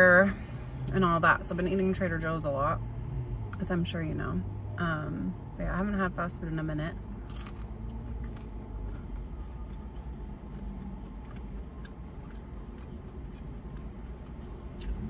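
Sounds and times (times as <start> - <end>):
low vehicle rumble: 0.0 - 15.0
mouth chewing food: 7.1 - 15.0.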